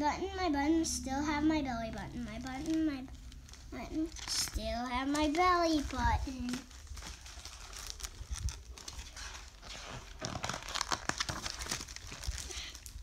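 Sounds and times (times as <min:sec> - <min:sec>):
book pages rustling: 0:04.2 - 0:12.5.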